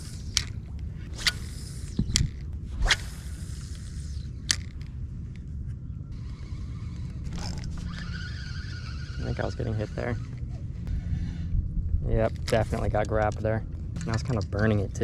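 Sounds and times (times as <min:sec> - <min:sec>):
fishing rod swish: 0:00.0 - 0:02.1, 0:02.7 - 0:04.4
fishing reel turning: 0:00.0 - 0:02.5, 0:03.1 - 0:04.9, 0:06.2 - 0:10.4.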